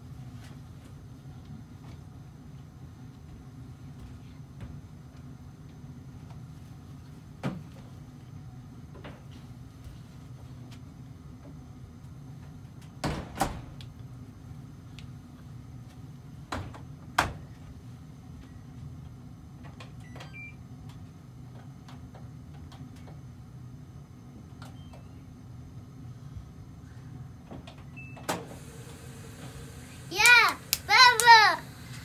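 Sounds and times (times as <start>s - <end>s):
steady low hum: 13.8s - 32.0s.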